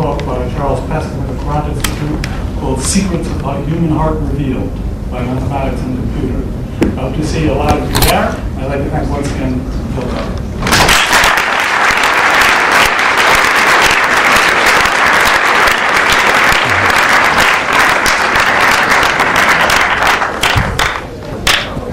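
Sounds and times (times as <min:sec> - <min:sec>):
audience applauding: 0:10.7 - 0:21.7.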